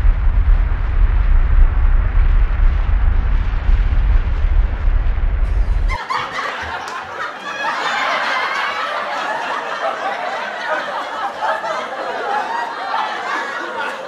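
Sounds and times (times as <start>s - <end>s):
deep explosion rumble: 0.0s - 6.0s
children laughing: 5.5s - 14.0s.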